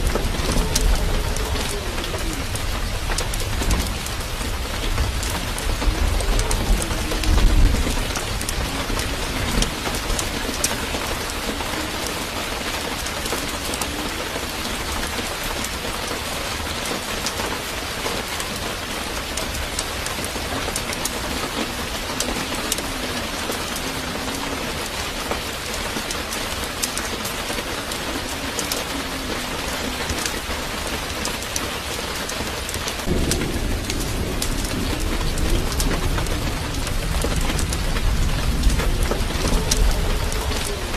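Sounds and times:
low rumble: 0:33.0 - 0:40.9.

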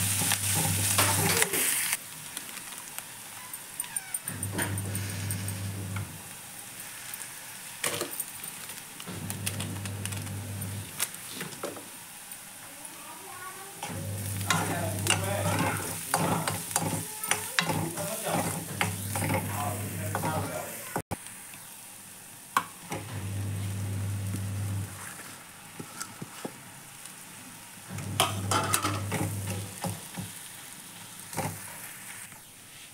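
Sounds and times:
onions sizzling in pan: 0:00.0 - 0:32.9
spoon scraping and clinking pan: 0:14.4 - 0:20.5.

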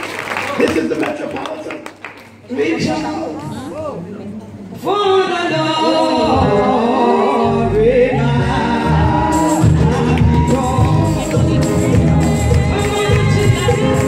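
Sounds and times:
gospel singing: 0:04.8 - 0:14.0
instrumental backing with bass: 0:06.2 - 0:14.0.

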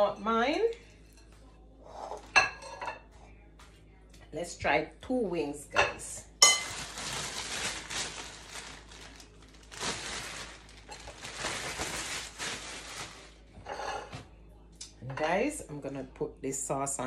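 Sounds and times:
plastic bag crinkling: 0:06.4 - 0:13.5.

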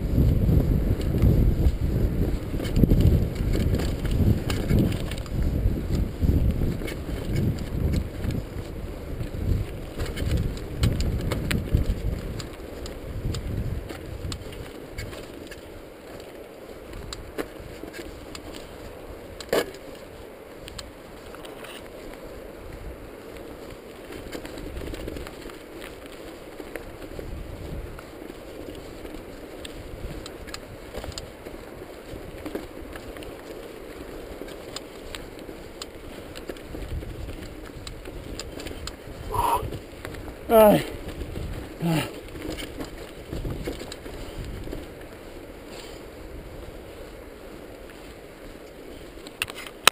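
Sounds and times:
wind buffeting microphone: 0:00.0 - 0:15.9, 0:26.4 - 0:33.0, 0:35.5 - 0:47.8
bike clicks and rattles: 0:00.1 - 0:39.1, 0:41.0 - 0:49.9.

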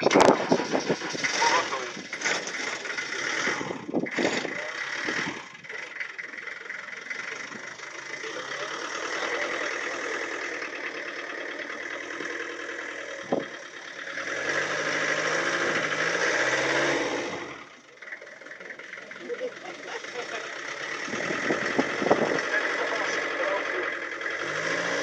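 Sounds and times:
vehicle engine under load: 0:00.0 - 0:25.0.

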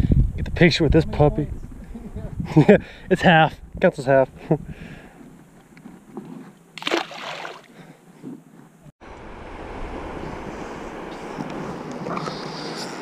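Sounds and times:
wind noise: 0:00.0 - 0:05.2
water sloshing: 0:06.8 - 0:07.8.

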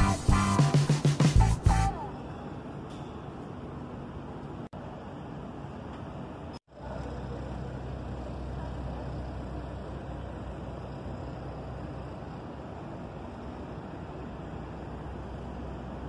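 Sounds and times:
low engine rumble: 0:04.8 - 0:16.0.

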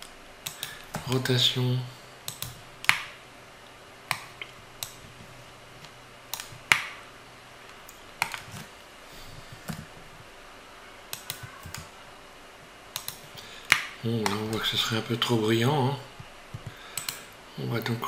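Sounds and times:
keyboard and mouse clicks: 0:00.4 - 0:01.1, 0:02.3 - 0:03.1, 0:06.3 - 0:07.0, 0:11.1 - 0:11.9, 0:13.0 - 0:14.7, 0:16.5 - 0:17.3.

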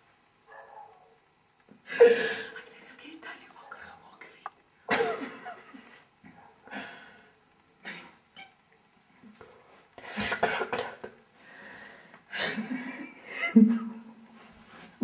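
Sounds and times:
person coughing: 0:04.9 - 0:05.3, 0:10.1 - 0:11.1.

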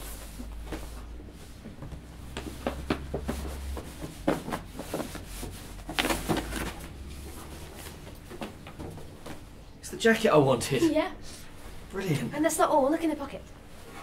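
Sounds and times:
fabric swishing: 0:00.0 - 0:09.5
paper bag rustling: 0:03.5 - 0:09.4.

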